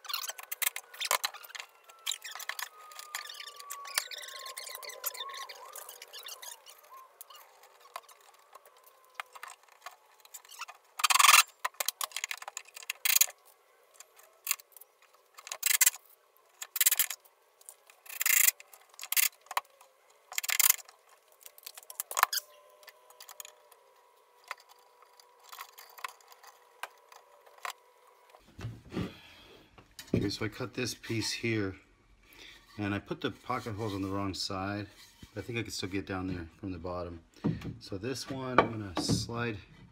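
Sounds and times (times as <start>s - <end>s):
wood and hardware scraping rattling: 0.0s - 28.8s, 37.4s - 39.9s.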